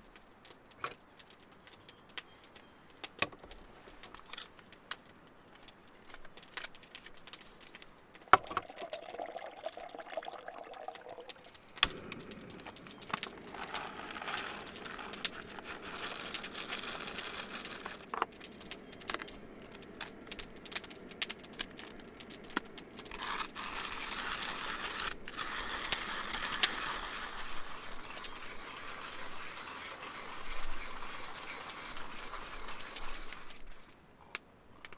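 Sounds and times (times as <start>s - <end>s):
coffee beans rattling and crunching: 6.7s - 33.9s.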